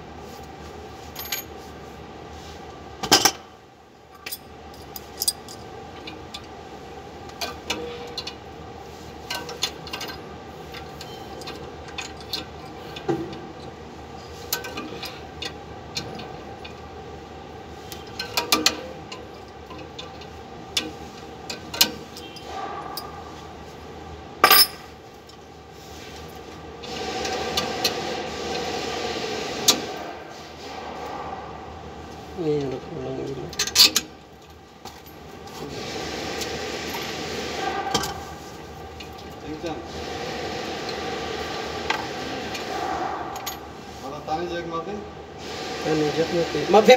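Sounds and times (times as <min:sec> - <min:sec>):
metal tools clinking: 0:04.2 - 0:05.7, 0:24.4 - 0:25.0.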